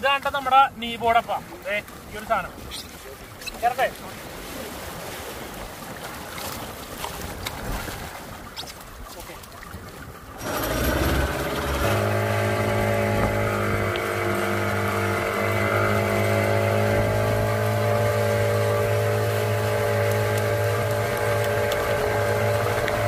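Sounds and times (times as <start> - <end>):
boat engine running: 9.2 - 23.0.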